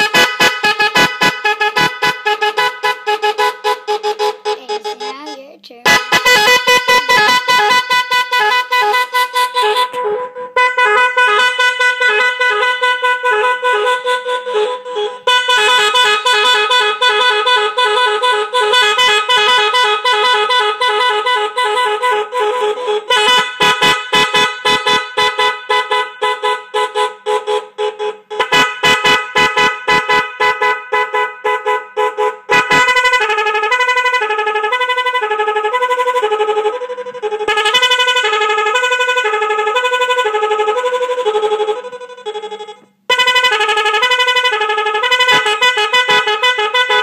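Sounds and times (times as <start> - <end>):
electronic car horn beeping: 0.0 - 47.0.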